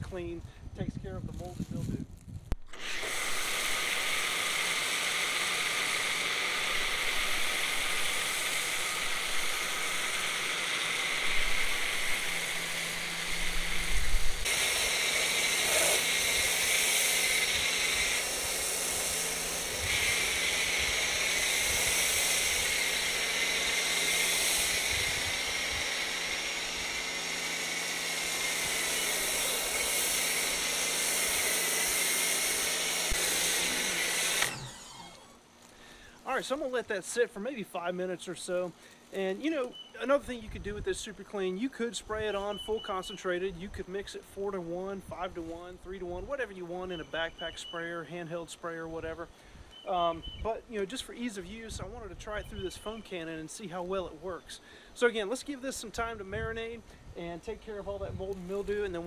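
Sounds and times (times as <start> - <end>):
electric motor humming: 2.6 - 35.7
hiss of foam spray: 13.3 - 25.8.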